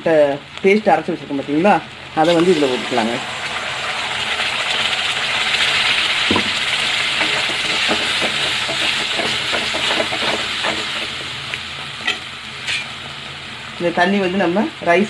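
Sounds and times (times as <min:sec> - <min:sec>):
paste sizzling in hot oil: 0:02.1 - 0:13.6.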